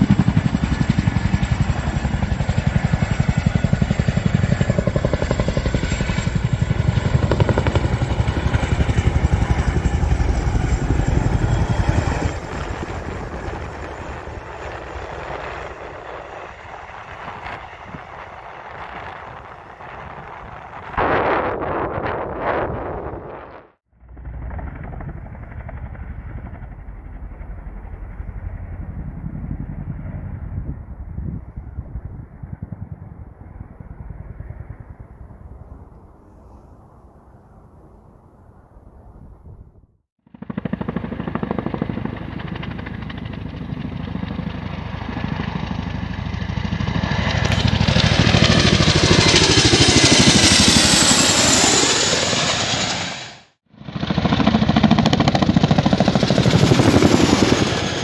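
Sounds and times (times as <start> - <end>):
helicopter rotor blades beating: 0.0 - 21.0, 24.0 - 31.2, 40.3 - 58.0
helicopter engine noise: 0.0 - 21.1, 24.0 - 35.4, 40.3 - 58.0.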